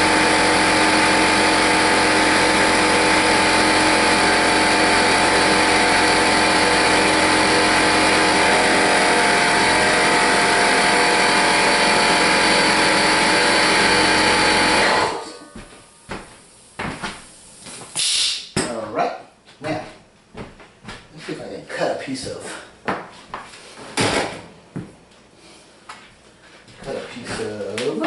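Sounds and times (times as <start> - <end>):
motor-driven machine humming: 0.0 - 15.9.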